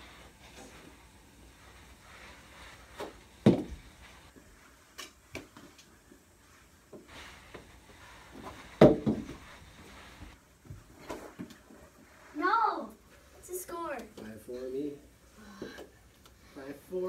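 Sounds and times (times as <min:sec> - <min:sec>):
heavy thumps: 0:03.0 - 0:04.1, 0:08.4 - 0:09.5.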